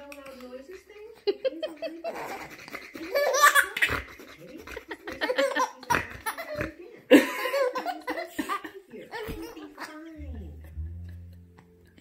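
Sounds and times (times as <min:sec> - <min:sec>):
baby laughing: 0:01.7 - 0:06.7, 0:07.4 - 0:10.0
adult laughter: 0:04.2 - 0:05.9.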